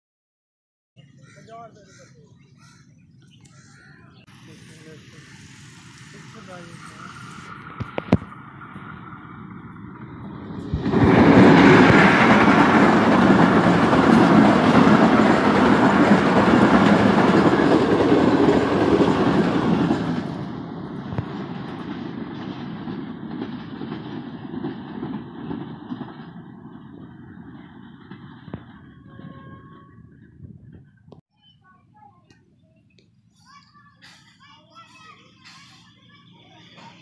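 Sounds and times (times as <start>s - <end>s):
train wheels clattering over rails: 6.2s - 29.6s.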